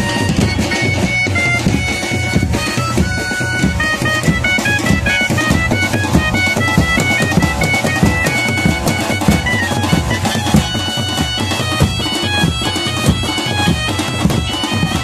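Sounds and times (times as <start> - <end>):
banjo melody: 0.0 - 10.7
fast drumming: 0.0 - 15.0.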